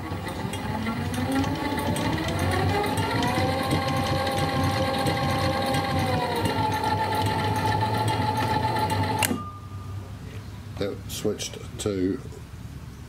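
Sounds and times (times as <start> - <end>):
electric winch motor whine: 0.0 - 9.7.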